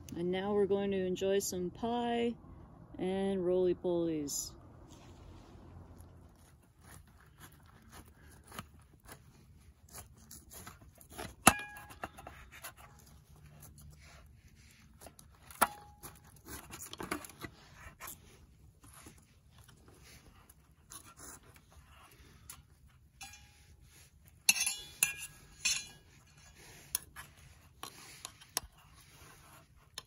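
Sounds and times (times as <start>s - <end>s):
cutlery scraping on dish: 24.4s - 27.0s.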